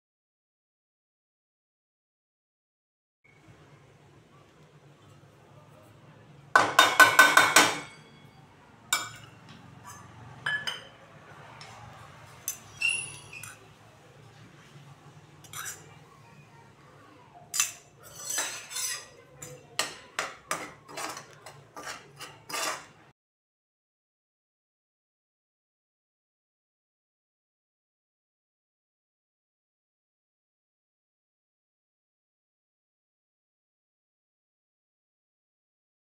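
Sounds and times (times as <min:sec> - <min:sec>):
steel bowl knocking on pan: 0:06.6 - 0:08.1
metal spoon clinking on pan: 0:06.6 - 0:11.0, 0:12.4 - 0:13.6, 0:17.5 - 0:22.9
metal spatula scraping pan: 0:15.4 - 0:16.0, 0:17.6 - 0:23.1.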